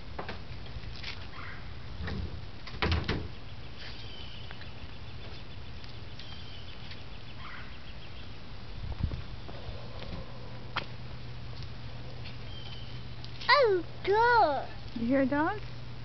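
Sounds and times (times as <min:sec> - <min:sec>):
bicycle knocks and rattles: 0:02.0 - 0:03.4
faint bird chirps: 0:03.3 - 0:08.5, 0:12.4 - 0:13.2
steady low rumble: 0:04.6 - 0:16.0.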